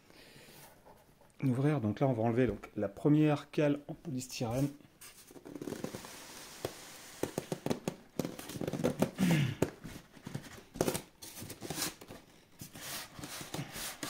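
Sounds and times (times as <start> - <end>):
polystyrene squeaking and creaking: 4.5 - 14.0.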